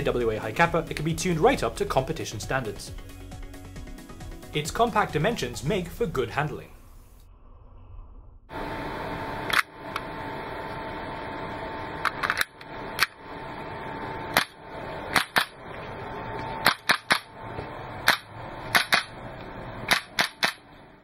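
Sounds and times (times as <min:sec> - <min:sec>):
airsoft pistol shots: 0:19.9 - 0:20.6.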